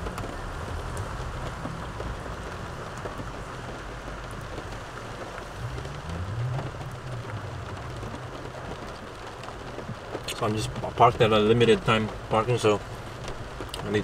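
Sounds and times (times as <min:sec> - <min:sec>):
low rumble: 0:00.0 - 0:11.0
rain on a car: 0:00.0 - 0:14.0.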